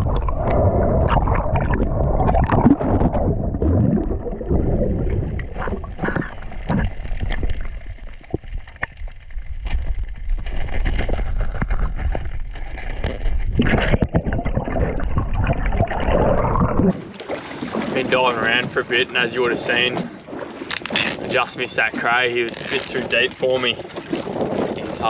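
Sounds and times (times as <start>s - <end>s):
gurgling bubbles: 0.0s - 18.3s
underwater rumble of moving water: 0.0s - 25.0s
clicks and crackles: 5.3s - 16.9s, 20.6s - 21.3s, 22.5s - 24.4s.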